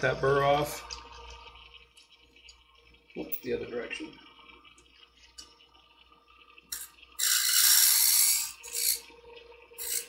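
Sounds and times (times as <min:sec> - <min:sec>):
blade grinding on spinning wheel: 0:06.7 - 0:09.1, 0:09.8 - 0:10.0
blade ticking on sharpener wheel: 0:07.2 - 0:09.0, 0:09.8 - 0:10.0
blade scraping: 0:07.2 - 0:09.1, 0:09.8 - 0:10.0.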